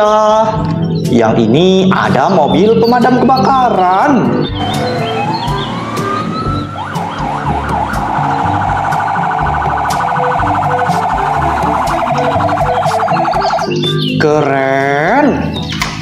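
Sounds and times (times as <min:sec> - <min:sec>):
fire truck siren: 0:04.5 - 0:14.0.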